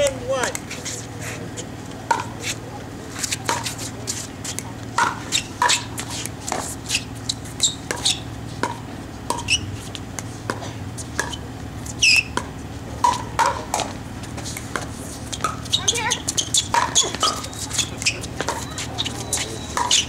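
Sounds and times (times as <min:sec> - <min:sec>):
sneakers squeaking on court: 0:00.0 - 0:20.0
paddles hitting plastic ball: 0:12.3 - 0:20.0.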